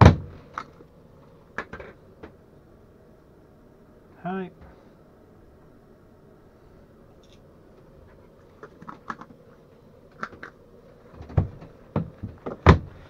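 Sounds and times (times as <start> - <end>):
wooden locker door clicks and knocks: 0.0 - 0.3, 11.2 - 13.0.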